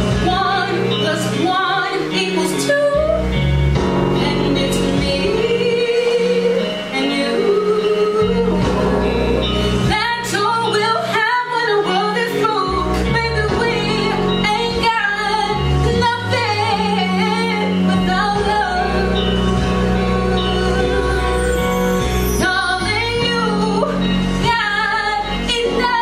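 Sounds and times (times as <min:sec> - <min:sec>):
woman singing: 0:00.0 - 0:03.4, 0:04.1 - 0:26.0
instrumental accompaniment: 0:00.0 - 0:26.0
held low bass notes: 0:08.2 - 0:10.5, 0:12.8 - 0:26.0.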